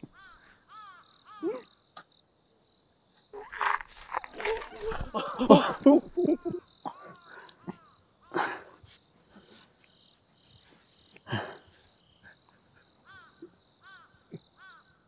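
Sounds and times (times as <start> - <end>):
crickets trilling: 0.0 - 15.0
man sob-laughing: 4.4 - 8.7.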